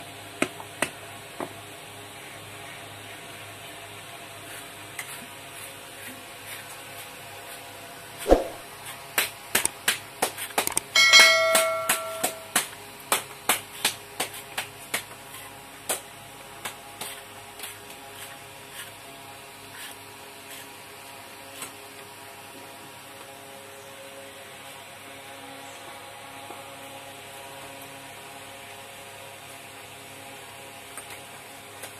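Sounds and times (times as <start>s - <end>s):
brief ringing note: 11.0s - 12.5s.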